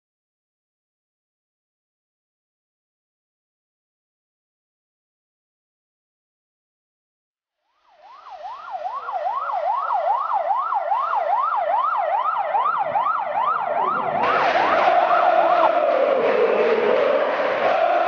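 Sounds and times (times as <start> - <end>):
police siren yelping: 7.8 - 18.0
crowd chanting: 14.0 - 18.0.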